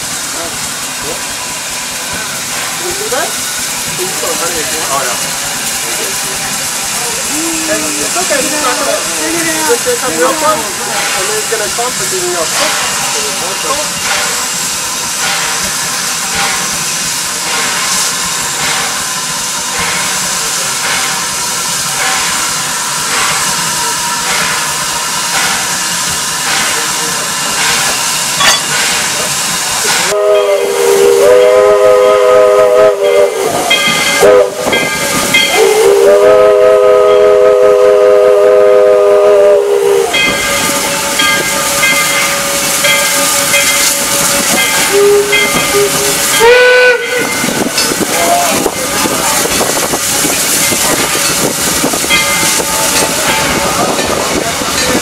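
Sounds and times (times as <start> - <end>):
steam hissing: 0.0 - 55.0
steam whistle blasts: 30.1 - 47.6.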